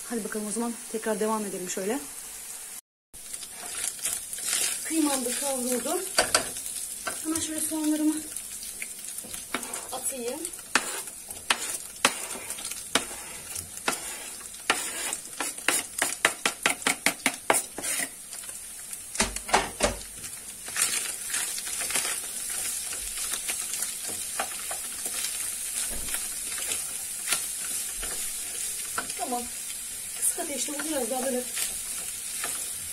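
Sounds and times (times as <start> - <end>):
meat and onions sizzling in a pan: 0.0 - 32.9
utensil stirring and tapping pan: 3.4 - 8.0, 9.2 - 18.2, 21.6 - 29.4, 30.1 - 32.9.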